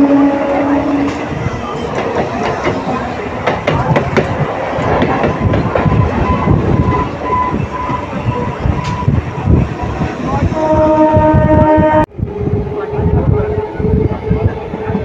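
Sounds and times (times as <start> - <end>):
trains rumbling: 0.0 - 15.0
rail-joint clacks: 1.0 - 10.5.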